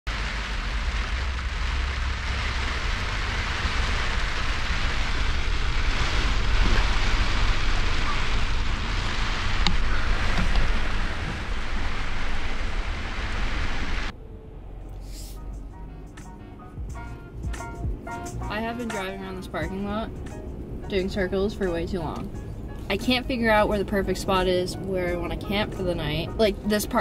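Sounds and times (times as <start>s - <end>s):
heavy rain on a truck: 0.1s - 14.1s
low rumble of wind: 0.1s - 27.0s.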